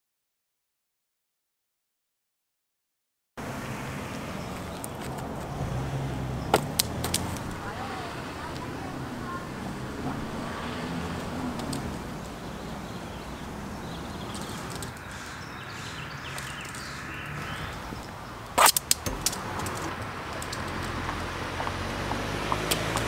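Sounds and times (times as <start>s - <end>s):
low traffic rumble: 3.4s - 23.0s
loud sharp click: 18.6s - 20.6s.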